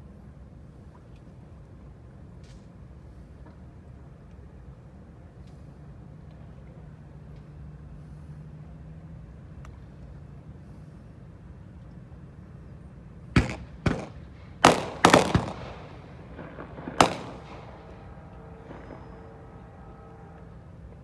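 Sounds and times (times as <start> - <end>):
faint steady drone: 0.0 - 21.0
sharp echoing bangs: 13.4 - 21.0.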